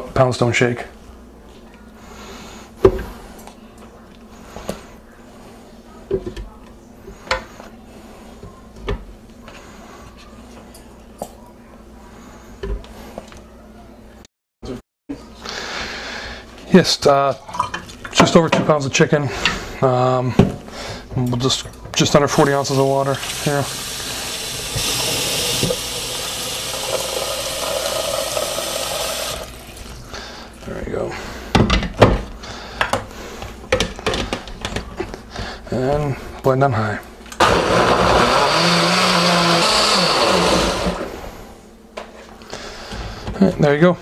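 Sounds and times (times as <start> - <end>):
water pouring into a blender jar: 23.1 - 29.8.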